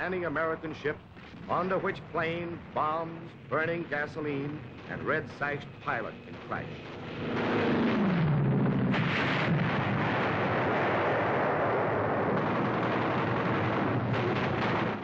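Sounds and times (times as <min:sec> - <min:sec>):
anti-aircraft gunfire: 0:00.0 - 0:15.0
explosions: 0:00.0 - 0:15.0
plane engine falling in pitch: 0:04.6 - 0:09.5.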